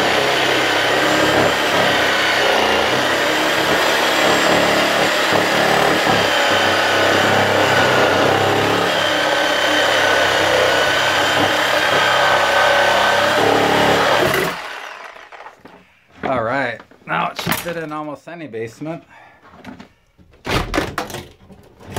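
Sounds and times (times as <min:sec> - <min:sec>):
reciprocating saw cutting wood: 0:00.0 - 0:15.7.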